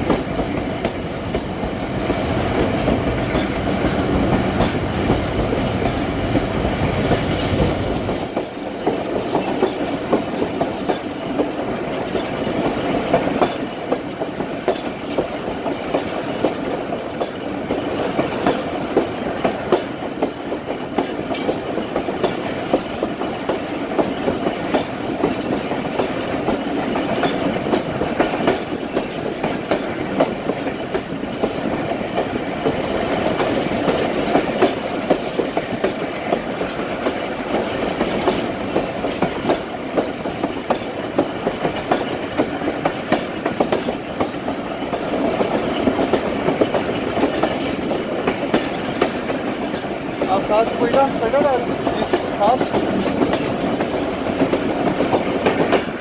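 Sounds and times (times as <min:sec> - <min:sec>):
train wheels rumbling on rails: 0:00.0 - 0:56.0
wheels clacking over rail joints: 0:00.0 - 0:56.0.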